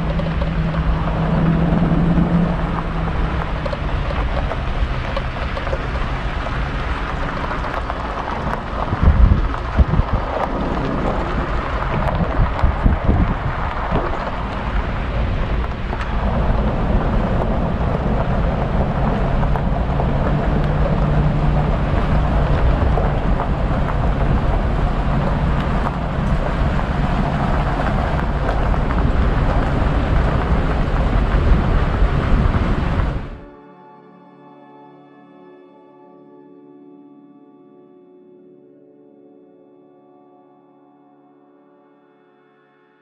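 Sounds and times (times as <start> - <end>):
truck engine and road rumble: 0.0 - 33.5
wind buffeting microphone: 0.0 - 33.5.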